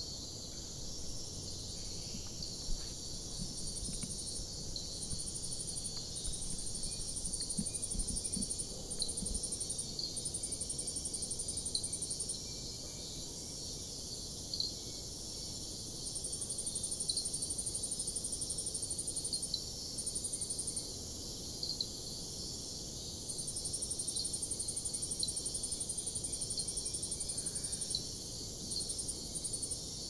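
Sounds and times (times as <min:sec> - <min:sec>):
short insect chirps: 0:00.0 - 0:10.6
high-pitched insect trilling: 0:00.0 - 0:13.2
faint steady hiss: 0:00.0 - 0:30.0.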